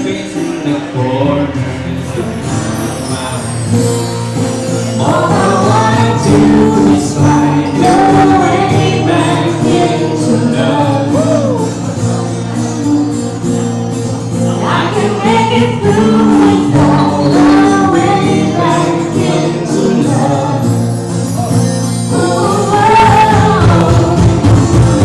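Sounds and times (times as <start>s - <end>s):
man singing: 0.0s - 4.2s, 4.8s - 13.4s, 14.4s - 25.0s
acoustic guitar: 0.0s - 25.0s
woman singing: 5.0s - 11.7s, 14.6s - 20.7s, 22.1s - 25.0s.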